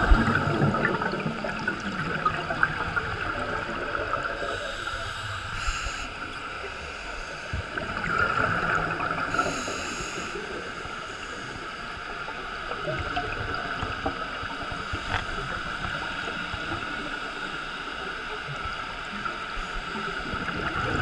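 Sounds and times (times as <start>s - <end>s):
gurgling bubble exhalations: 0.0s - 5.0s
underwater wash: 0.0s - 21.0s
breathing through a regulator: 4.2s - 11.8s.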